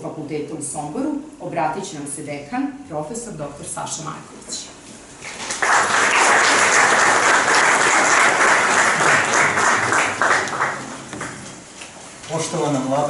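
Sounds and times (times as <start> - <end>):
audience applauding: 5.2 - 11.4.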